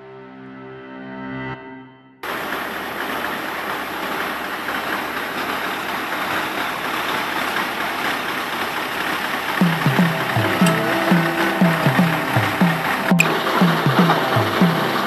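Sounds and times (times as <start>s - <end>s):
truck engine running: 3.5s - 15.0s.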